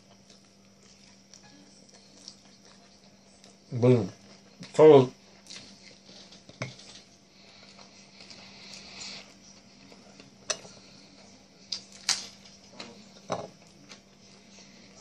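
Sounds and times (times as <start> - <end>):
person chewing with wet smacks: 0.0 - 4.7, 5.4 - 10.4
steady low hum: 0.0 - 15.0.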